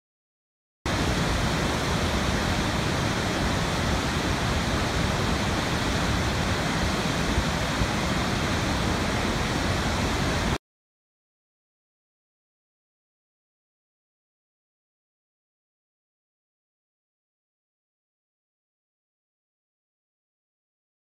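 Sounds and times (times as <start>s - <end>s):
waterfall rushing: 0.9s - 10.6s.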